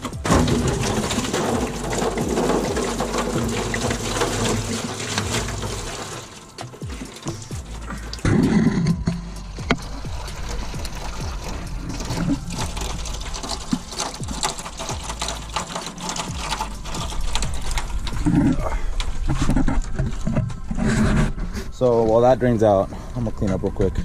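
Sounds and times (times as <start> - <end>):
liquid splashing into foil pan: 0.0 - 8.2
bump: 0.0 - 22.0.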